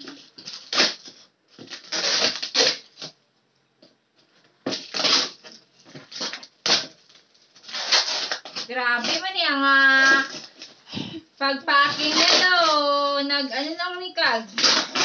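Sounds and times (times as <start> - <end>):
packing tape ripping off cardboard: 0.0 - 3.2, 4.6 - 10.8, 11.8 - 13.1, 14.5 - 15.0.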